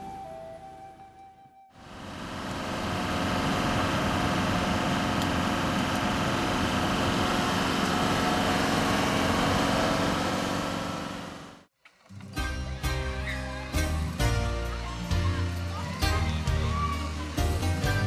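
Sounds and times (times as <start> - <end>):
car engine and road noise: 1.8 - 11.7.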